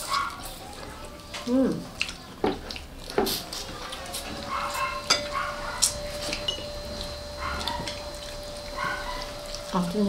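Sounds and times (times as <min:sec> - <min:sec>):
food being eaten: 0:00.0 - 0:10.0
tableware clinking: 0:04.5 - 0:06.8.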